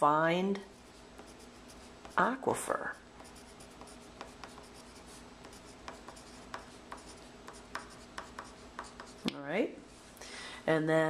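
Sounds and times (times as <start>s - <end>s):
pen scratching on paper: 0.7s - 9.2s.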